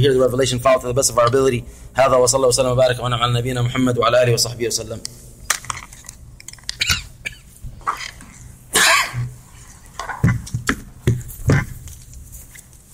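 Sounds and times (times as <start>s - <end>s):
person coughing: 6.8s - 7.6s, 8.7s - 9.4s.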